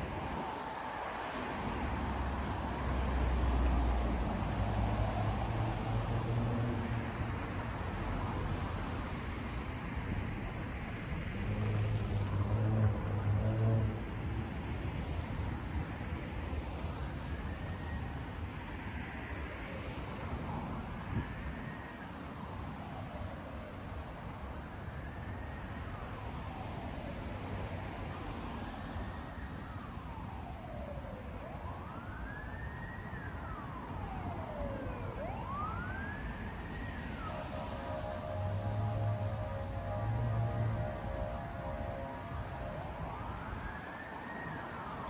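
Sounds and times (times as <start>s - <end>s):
vehicles driving past: 0.0s - 15.1s, 26.5s - 45.0s.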